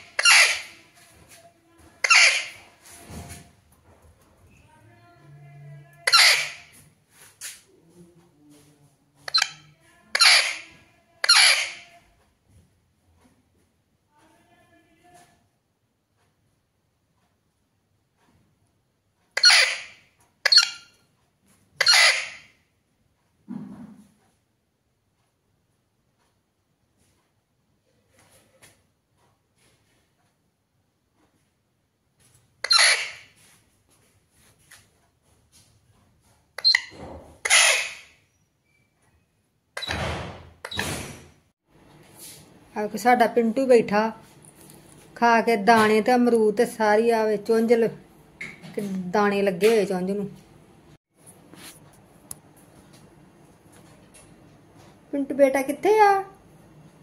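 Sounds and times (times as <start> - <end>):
parakeet squawking: 0.0 - 0.8, 2.0 - 2.6, 6.0 - 6.7, 9.3 - 12.0, 19.4 - 20.9, 21.8 - 22.5, 32.6 - 33.3, 36.6 - 38.1.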